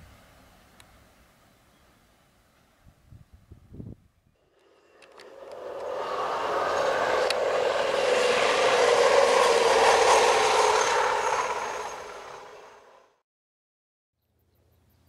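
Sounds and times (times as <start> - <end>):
track vehicle rolling on rails: 4.4 - 13.2.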